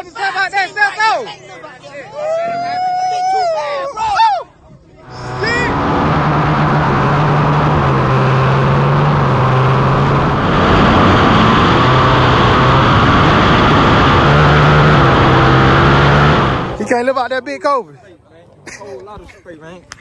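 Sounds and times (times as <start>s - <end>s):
atv engine at high revs: 5.0s - 16.9s.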